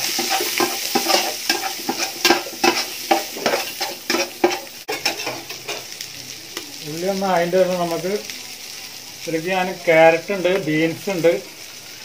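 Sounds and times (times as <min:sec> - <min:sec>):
metal spatula scraping pan: 0:00.0 - 0:05.9
food sizzling in hot oil: 0:00.0 - 0:12.0.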